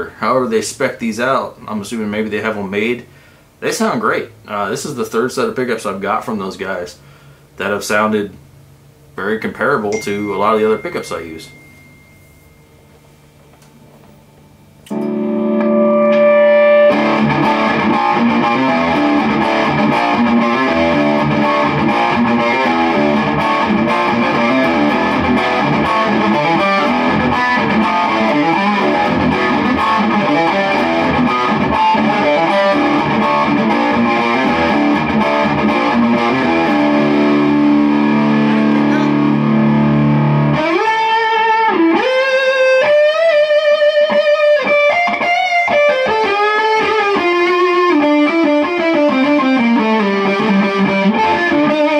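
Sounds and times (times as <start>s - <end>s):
distorted electric guitar: 14.8s - 51.9s.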